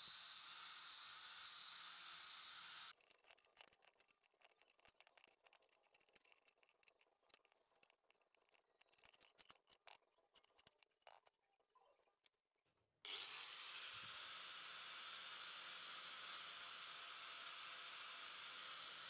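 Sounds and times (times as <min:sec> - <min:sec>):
angle grinder grinding steel: 0:00.0 - 0:02.9, 0:13.1 - 0:19.0.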